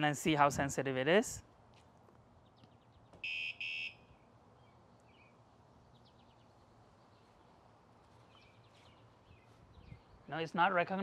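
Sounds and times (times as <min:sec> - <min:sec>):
bird chirps: 0:02.4 - 0:07.6
short electronic beeps: 0:03.2 - 0:04.0.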